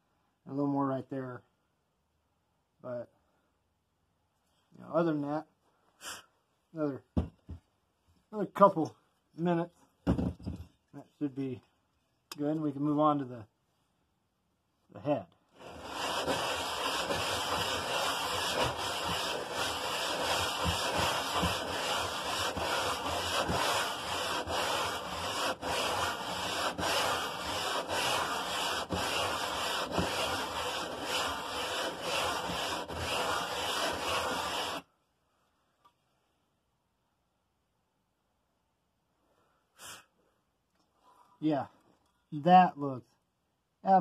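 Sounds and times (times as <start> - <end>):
metal rubbed on sandpaper: 15.6 - 34.8.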